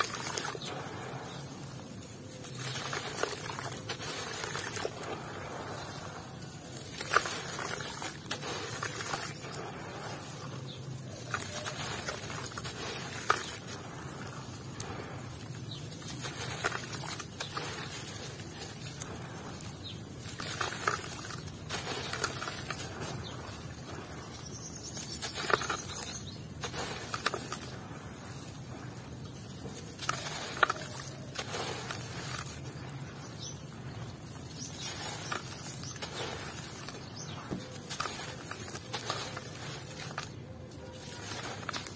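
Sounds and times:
dirt crumbs splashing into water: 0:00.0 - 0:41.9.

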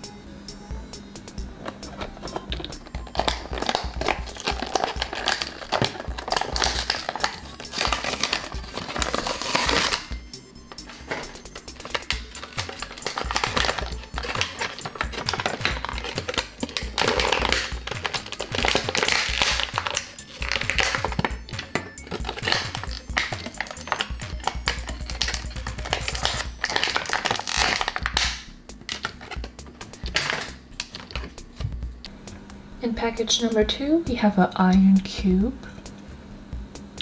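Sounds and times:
background music: 0:00.0 - 0:37.0
plastic packaging crinkling: 0:01.6 - 0:10.1, 0:10.7 - 0:31.4.

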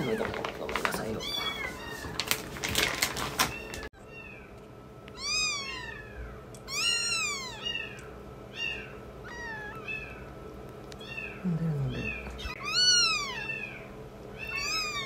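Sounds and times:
kittens mewing: 0:03.5 - 0:10.4, 0:11.0 - 0:15.0.

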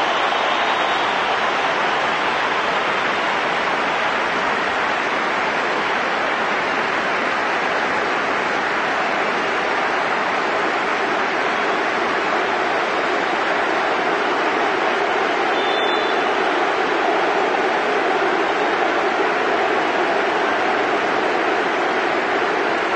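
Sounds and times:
stadium crowd applause: 0:00.0 - 0:22.9.

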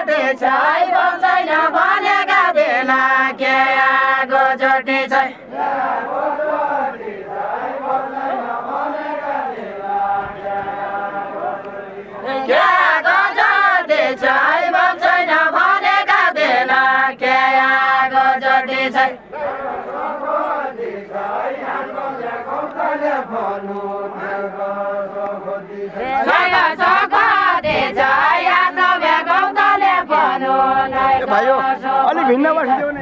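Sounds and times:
group chanting folk song: 0:00.0 - 0:32.8.

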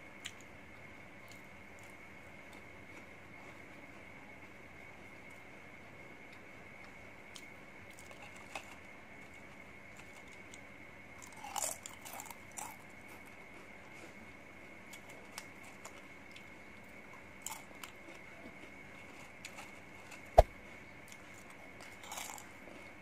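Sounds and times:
chips rustling and crunching: 0:11.2 - 0:12.8, 0:17.4 - 0:18.2, 0:22.0 - 0:22.5.

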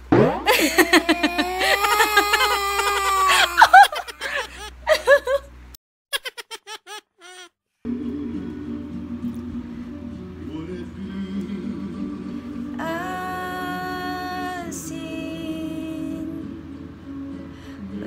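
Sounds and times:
toddler crying: 0:00.8 - 0:04.7, 0:06.7 - 0:07.5
low steady hum: 0:07.9 - 0:18.0.

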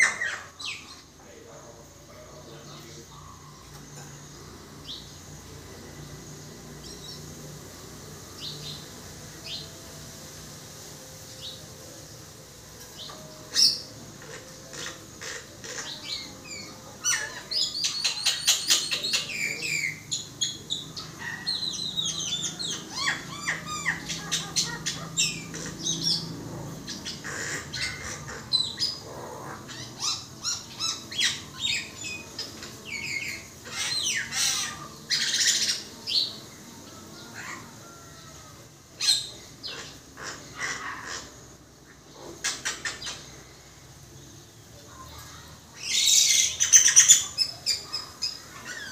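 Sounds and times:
myna calling: 0:00.0 - 0:01.2, 0:13.0 - 0:43.6.

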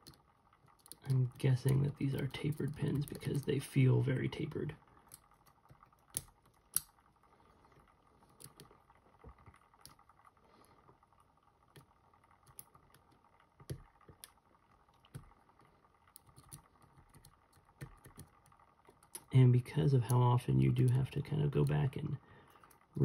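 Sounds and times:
lock pick tapping lock pins: 0:05.1 - 0:07.0, 0:16.1 - 0:19.3.

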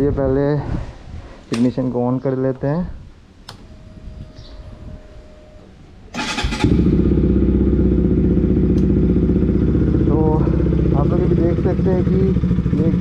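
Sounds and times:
motorcycle engine cranking: 0:06.1 - 0:07.5
motorcycle engine idling: 0:06.2 - 0:13.0.

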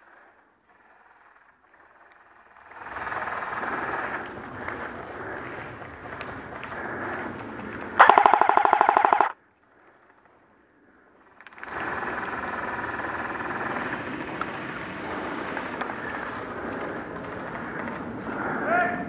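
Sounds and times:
airsoft rifle full-auto burst: 0:08.0 - 0:09.4, 0:11.7 - 0:14.1.

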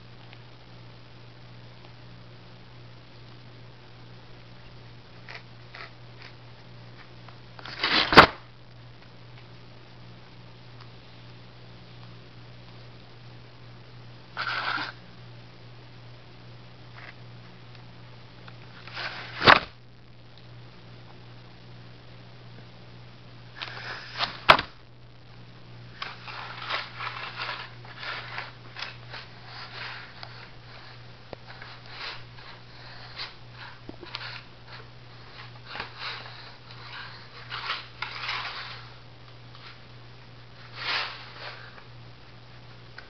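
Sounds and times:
faint steady hum: 0:00.0 - 0:43.0
cat scratching cardboard: 0:05.2 - 0:06.4, 0:14.4 - 0:15.0, 0:25.9 - 0:39.0.

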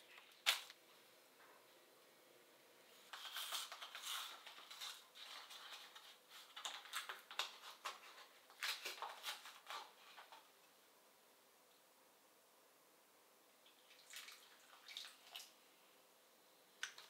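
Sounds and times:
paper carton crackling: 0:03.1 - 0:10.3.

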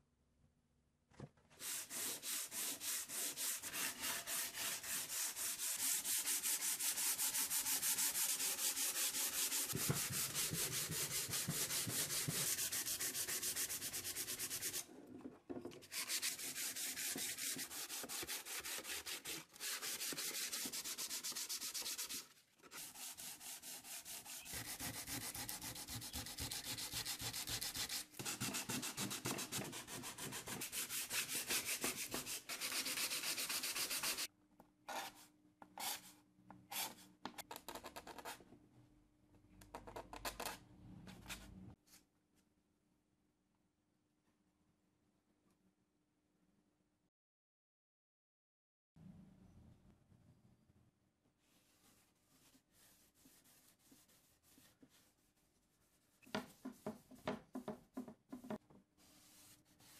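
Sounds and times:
hand sanding wood: 0:01.6 - 0:14.8, 0:15.9 - 0:34.3, 0:51.9 - 0:55.4.

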